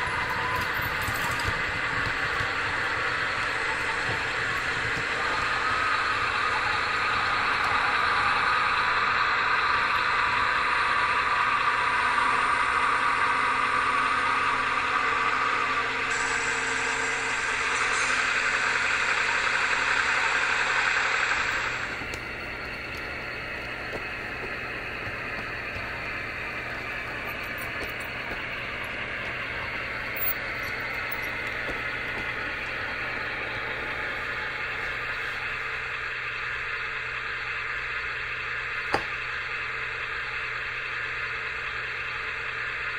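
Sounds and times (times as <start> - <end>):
model train wheels rolling on track: 0.0 - 42.9.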